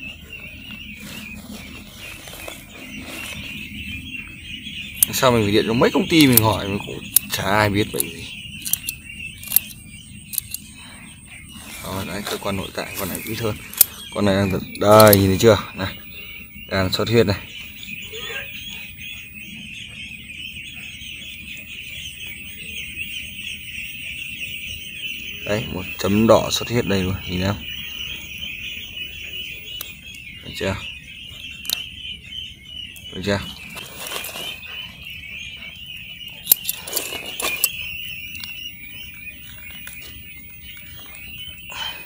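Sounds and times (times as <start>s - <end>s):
ducklings peeping: 0.0s - 42.0s
sharp clicks: 6.3s - 10.7s, 12.9s - 14.1s, 31.6s - 31.8s, 36.4s - 38.6s.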